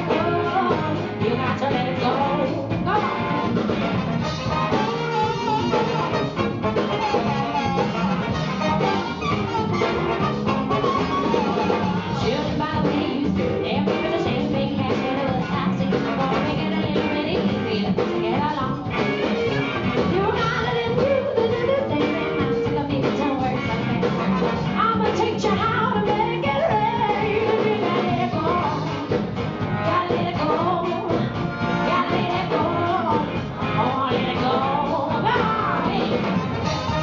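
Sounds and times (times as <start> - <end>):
bass guitar: 0.0 - 37.0
drum kit: 0.0 - 37.0
electric guitars: 0.0 - 37.0
horn section: 3.0 - 12.4, 18.9 - 20.2, 23.6 - 25.0, 31.4 - 33.6, 35.5 - 37.0.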